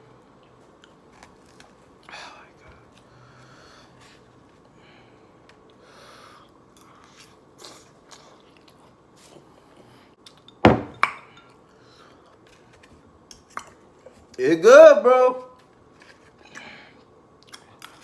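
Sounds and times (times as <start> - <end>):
faint chewing: 0.2 - 3.4, 6.4 - 10.5, 16.0 - 18.0
glass clinking on wooden table: 10.6 - 11.2.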